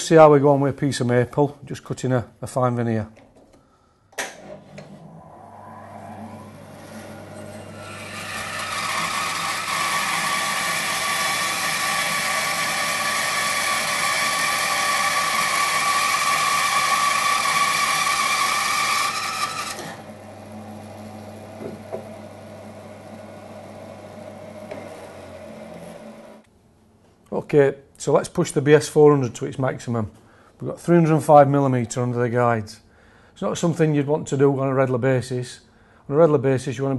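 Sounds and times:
bandsaw motor humming: 5.8s - 26.4s
bandsaw cutting wood: 6.6s - 22.3s, 24.4s - 26.4s.

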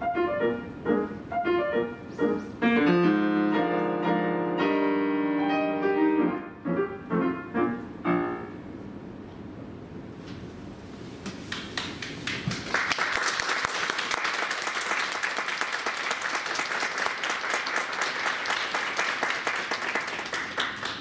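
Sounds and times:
audience applauding: 11.5s - 21.0s.

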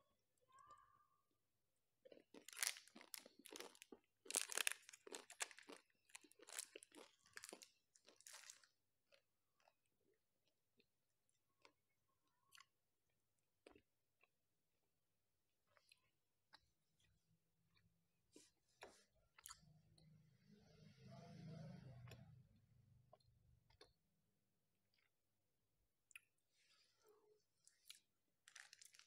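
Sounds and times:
crunching and chewing ice cream: 2.0s - 14.4s, 15.6s - 20.1s, 23.0s - 24.1s, 24.8s - 25.3s, 27.6s - 29.0s.

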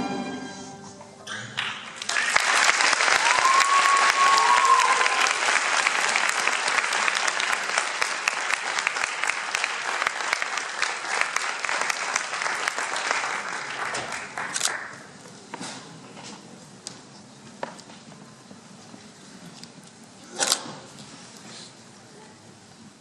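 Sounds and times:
audience applauding: 1.4s - 15.1s.

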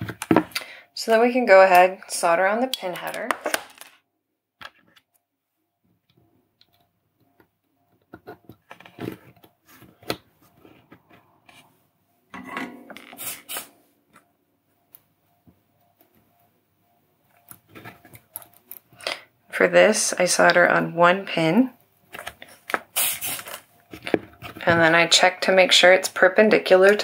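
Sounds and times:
clicks and rubbing of small parts: 6.0s - 11.7s, 17.3s - 19.2s.

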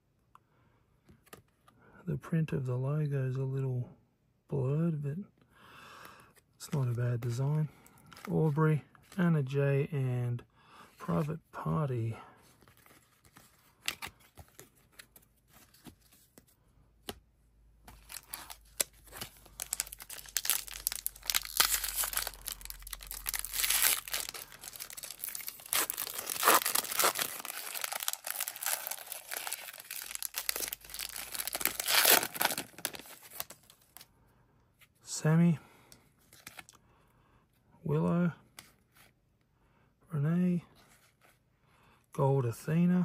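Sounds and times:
wrapper tearing and crinkling: 18.0s - 34.0s.

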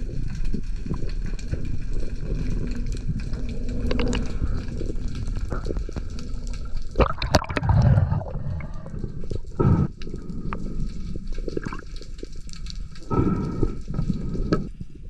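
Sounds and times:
muffled underwater bubbling: 0.0s - 15.0s.

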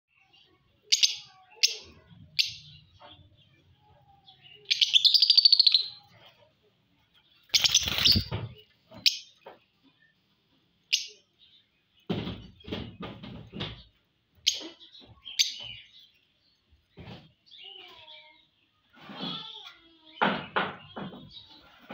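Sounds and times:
bird chirping and trilling: 0.1s - 6.3s, 7.2s - 9.4s, 10.9s - 12.9s, 14.4s - 16.6s
wings flapping: 7.5s - 8.5s
knocks: 12.1s - 14.0s.

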